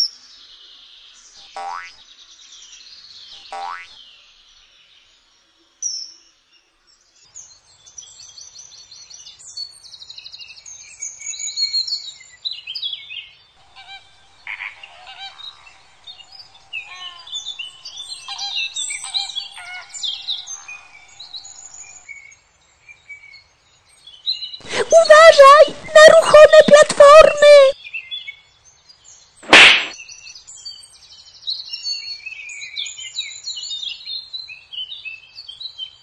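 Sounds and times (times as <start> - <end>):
birds chirping and trilling: 13.0 - 22.3
lower repeated bird calls: 13.6 - 22.0.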